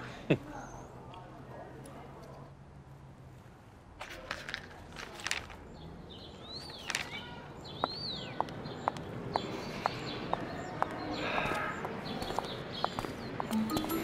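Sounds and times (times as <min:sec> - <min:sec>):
bird chirps: 0:05.7 - 0:14.0
footsteps on stone paving: 0:06.6 - 0:14.0.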